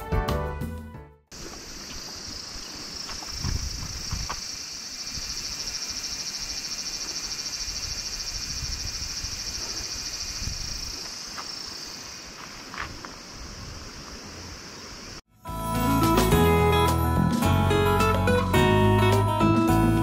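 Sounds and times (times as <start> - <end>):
insects trilling: 1.3 - 15.2.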